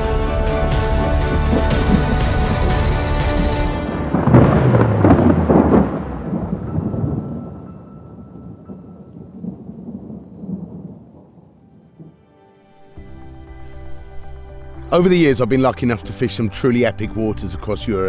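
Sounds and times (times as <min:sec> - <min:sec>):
rain hissing: 0:00.0 - 0:07.7
thunder crack and rumble: 0:01.3 - 0:12.1.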